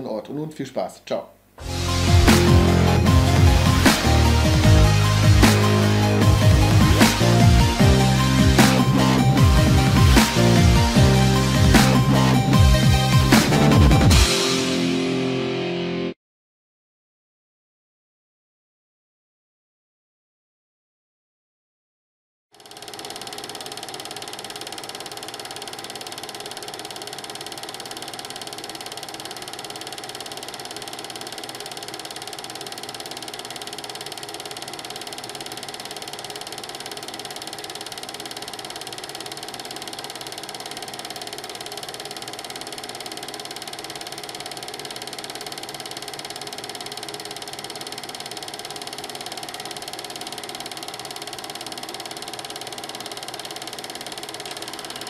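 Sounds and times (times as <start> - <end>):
film projector clattering: 22.6 - 55.0.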